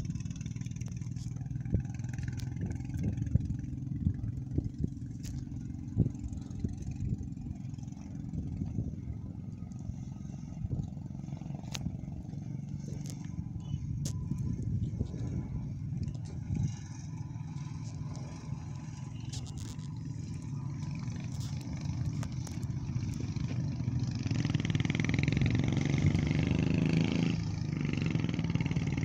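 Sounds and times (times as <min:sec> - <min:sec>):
motorcycle engine running: 0:00.0 - 0:29.0
clicks and rattles on gravel: 0:00.7 - 0:03.2, 0:17.6 - 0:23.7.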